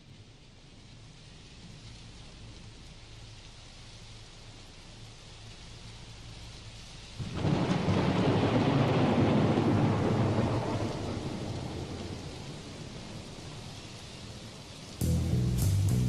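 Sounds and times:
steady rain: 0.0s - 16.0s
thunder rumble: 7.2s - 16.0s.

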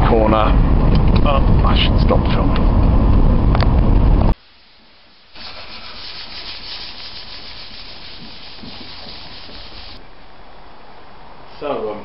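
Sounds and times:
low rumbling road noise: 0.0s - 4.4s, 5.4s - 11.5s
hand sanding body panels: 5.4s - 10.0s.

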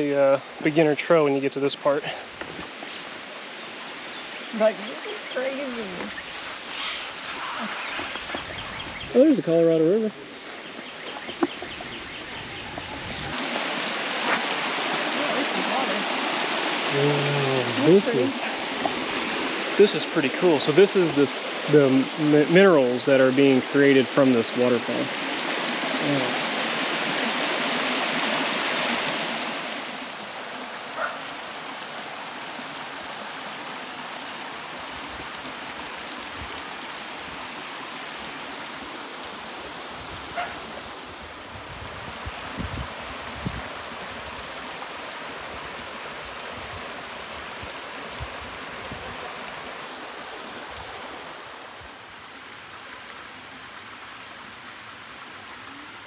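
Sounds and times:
waterfall rushing and splashing: 0.0s - 56.0s.

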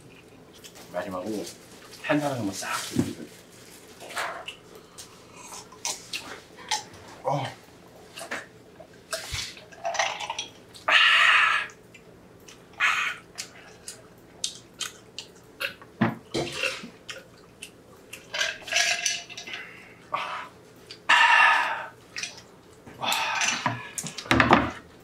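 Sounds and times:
chewing: 4.0s - 6.9s, 11.7s - 15.9s, 16.5s - 18.3s
lip smacking: 4.2s - 4.7s.

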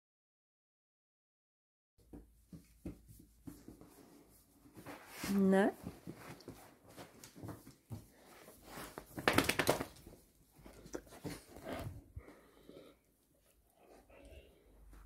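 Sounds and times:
dogs moving on tiled floor: 2.5s - 12.3s.

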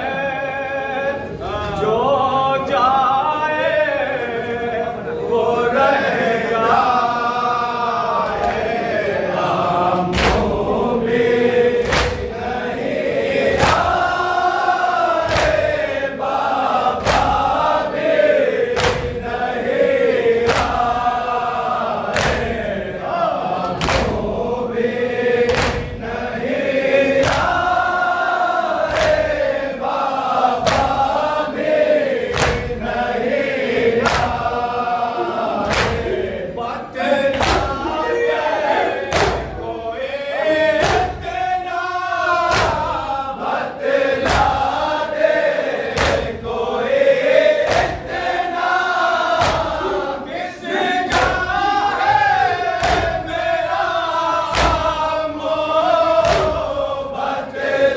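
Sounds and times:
men chanting in unison: 0.0s - 57.9s
hands slapping chests: 10.1s - 10.6s, 11.8s - 12.4s, 13.5s - 14.4s, 15.1s - 16.0s, 17.0s - 17.7s, 18.7s - 19.4s, 20.4s - 21.2s, 22.0s - 22.7s, 23.6s - 24.3s, 25.5s - 26.0s, 27.2s - 27.8s, 28.8s - 29.5s, 30.6s - 31.3s, 32.2s - 32.8s, 34.0s - 34.6s, 35.6s - 36.3s, 37.3s - 37.8s, 39.0s - 39.6s, 40.7s - 41.4s, 42.4s - 43.1s, 44.2s - 44.8s, 45.7s - 46.5s, 47.6s - 48.3s, 49.3s - 49.8s, 51.1s - 51.5s, 52.6s - 53.4s, 54.4s - 55.1s, 56.1s - 56.8s.

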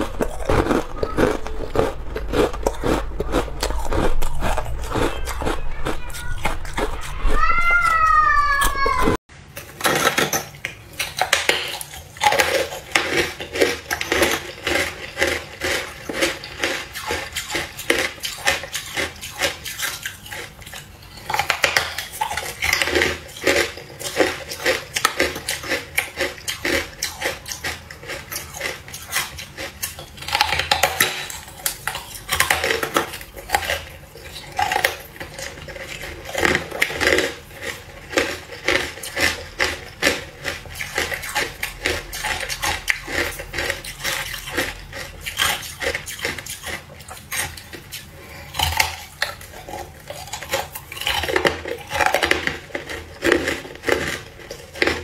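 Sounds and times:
ice crunching: 0.0s - 9.1s.

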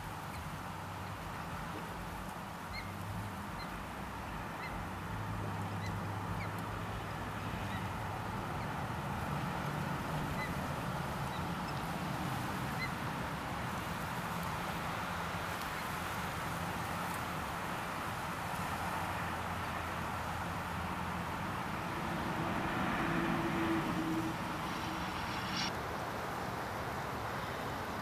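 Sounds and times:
low background rush: 16.3s - 26.8s.

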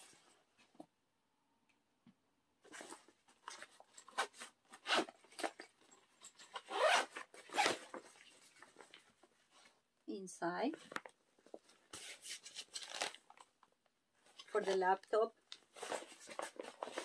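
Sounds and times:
backpack zipper pulled open: 4.1s - 5.5s, 6.5s - 7.9s.

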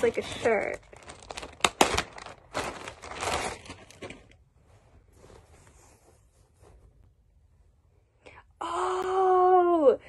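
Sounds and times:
packaging crinkling and rustling: 0.0s - 4.5s.

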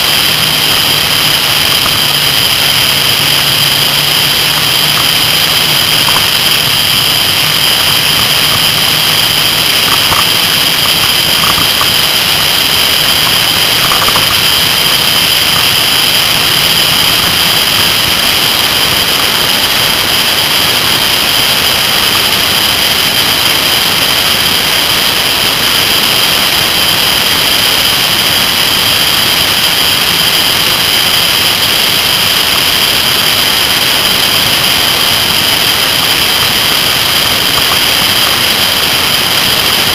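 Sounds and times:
constant high whine: 0.0s - 39.9s
motorcycle engine running: 0.0s - 39.9s.

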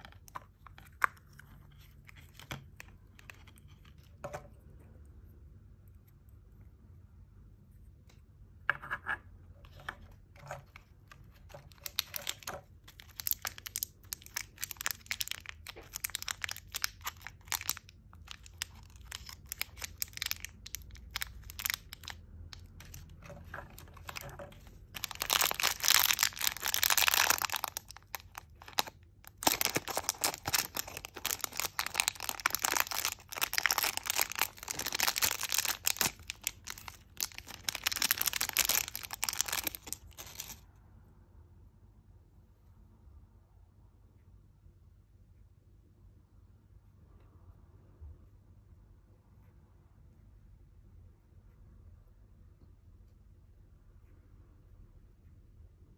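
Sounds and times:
plastic packets crinkling and tearing: 10.7s - 40.6s.

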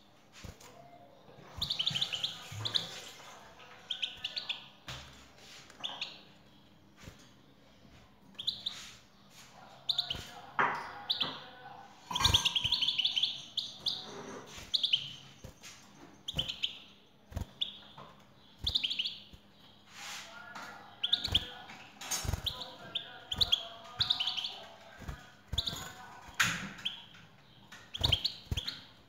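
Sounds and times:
bird twittering: 12.1s - 14.1s, 18.6s - 19.3s, 27.8s - 28.9s.

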